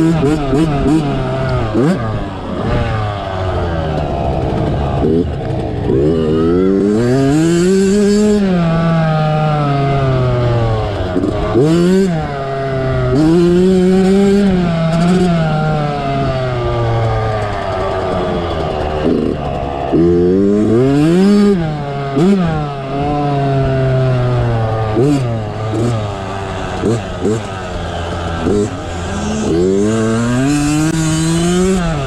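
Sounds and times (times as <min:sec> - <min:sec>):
dirt bike engine revving: 0:00.0 - 0:32.0.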